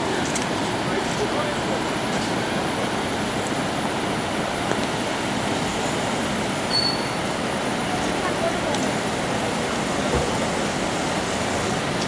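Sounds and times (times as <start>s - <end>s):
high whistle: 6.7s - 7.2s.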